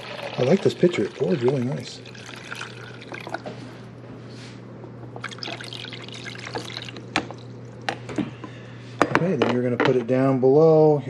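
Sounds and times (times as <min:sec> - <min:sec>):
water pouring and splashing: 0:05.2 - 0:07.4.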